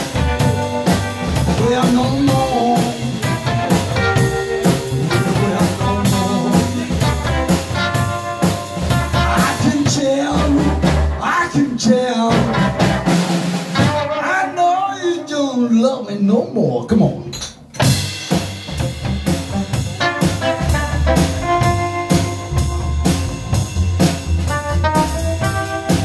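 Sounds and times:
upright double bass: 0:00.0 - 0:13.2, 0:17.8 - 0:26.0
electric guitar: 0:00.0 - 0:14.2, 0:17.8 - 0:26.0
drum kit: 0:00.0 - 0:14.6, 0:16.9 - 0:26.0
man singing: 0:01.4 - 0:03.6, 0:05.0 - 0:07.3, 0:09.1 - 0:12.8, 0:13.9 - 0:17.1.

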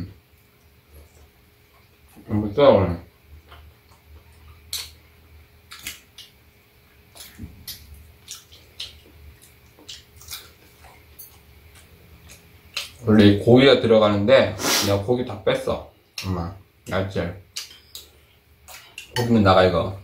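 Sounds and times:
chewing and mouth smacks: 0:03.4 - 0:13.0, 0:16.1 - 0:19.2.

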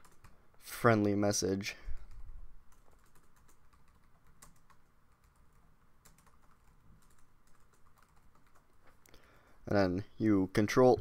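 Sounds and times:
faint keyboard typing: 0:00.0 - 0:00.6, 0:01.8 - 0:09.2.

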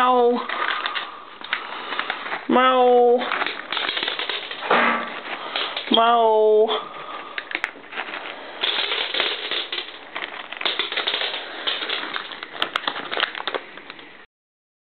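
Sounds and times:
cats crunching dry kibble: 0:00.4 - 0:02.5, 0:03.1 - 0:04.6, 0:05.2 - 0:06.0, 0:06.8 - 0:14.2.

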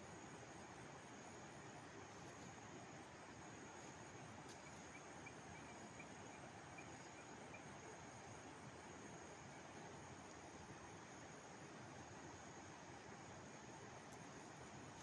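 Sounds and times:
faint insect chirps: 0:00.0 - 0:15.0
faint steady hiss: 0:00.0 - 0:15.0
thin high steady tone: 0:03.0 - 0:09.2.

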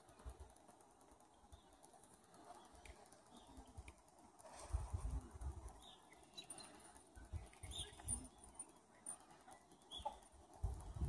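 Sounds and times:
faint bird chirps: 0:04.5 - 0:11.0
wind rumble on microphone: 0:10.6 - 0:11.0.

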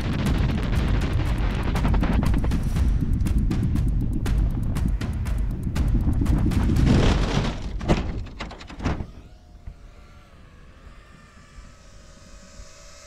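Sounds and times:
wind buffeting camera: 0:00.0 - 0:12.7
model plane crashing into ground: 0:06.8 - 0:09.9.

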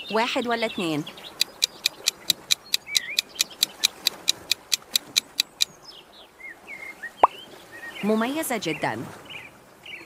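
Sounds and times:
faint bird chirps: 0:00.0 - 0:04.0
fast timer ticking: 0:01.4 - 0:05.7.

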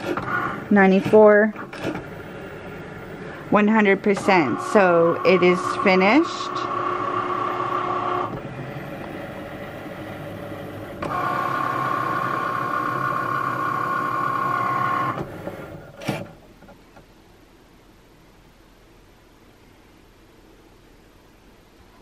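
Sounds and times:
cutting machine motors whining: 0:00.0 - 0:16.3.

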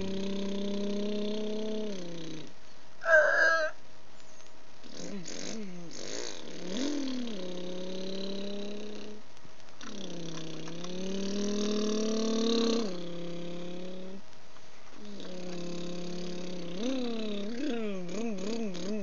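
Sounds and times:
person imitating engine hum: 0:00.0 - 0:03.8, 0:04.9 - 0:09.2, 0:09.8 - 0:14.2, 0:15.0 - 0:19.0.

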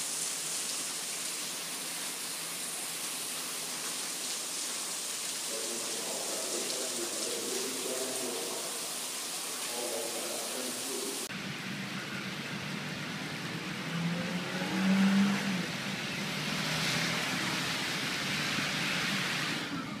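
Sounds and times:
running water: 0:00.0 - 0:11.4
car driving on wet road: 0:09.6 - 0:20.0.

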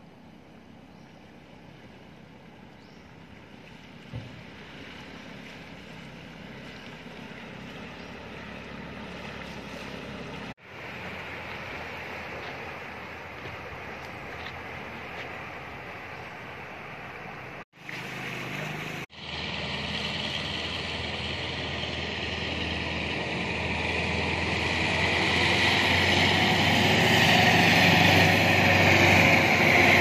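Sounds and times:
pickup truck driving through water: 0:01.3 - 0:30.0
motorbike driving through water: 0:01.4 - 0:30.0
water splashing: 0:03.1 - 0:19.2.

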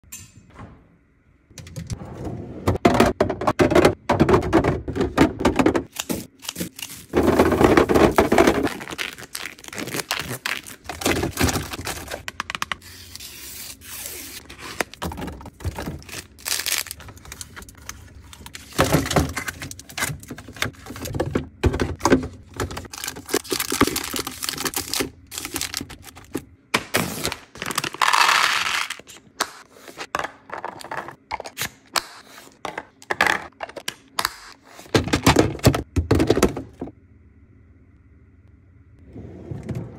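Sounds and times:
plastic wrappers crinkling and tearing: 0:05.9 - 0:07.2, 0:08.1 - 0:21.0, 0:22.8 - 0:26.3.

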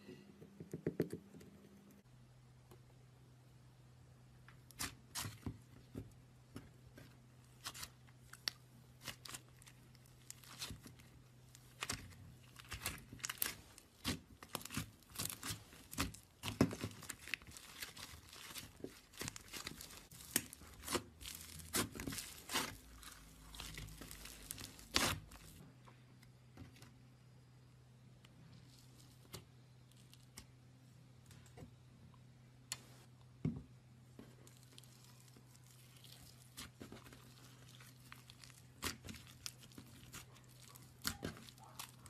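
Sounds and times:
slime crackling and popping: 0:07.6 - 0:25.6, 0:34.5 - 0:42.0.

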